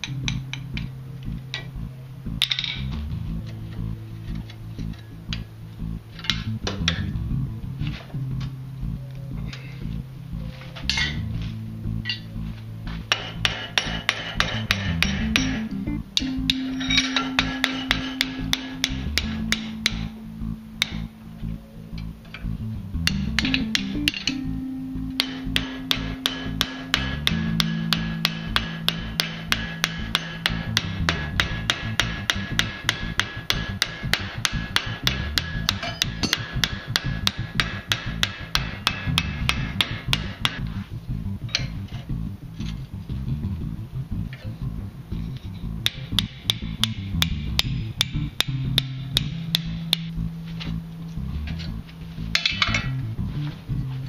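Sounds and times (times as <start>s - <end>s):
background music: 0.0s - 54.0s
hammer striking hot iron: 12.9s - 21.2s, 23.0s - 24.4s, 25.1s - 40.8s, 45.8s - 50.8s, 52.3s - 53.0s.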